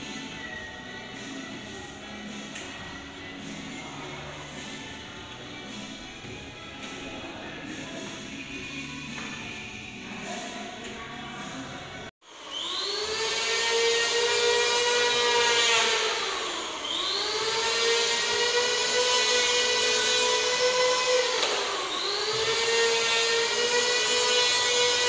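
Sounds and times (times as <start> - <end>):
electric hand planer whining: 12.3 - 25.0.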